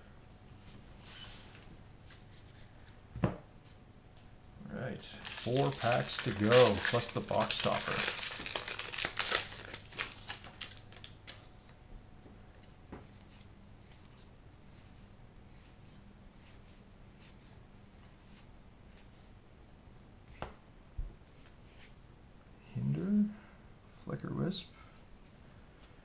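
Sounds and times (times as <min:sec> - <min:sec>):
foil wrapper clicks and rustles: 0:05.2 - 0:11.5.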